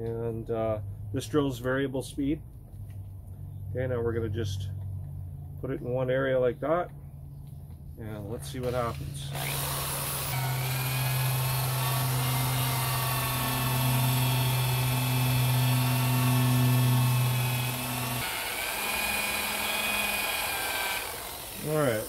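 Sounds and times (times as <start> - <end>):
electric drill motor whining: 9.3 - 22.0.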